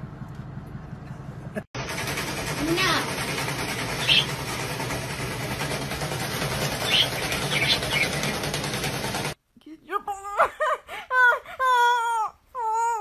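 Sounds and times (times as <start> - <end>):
parrot chirping: 4.0 - 4.3, 6.8 - 8.4.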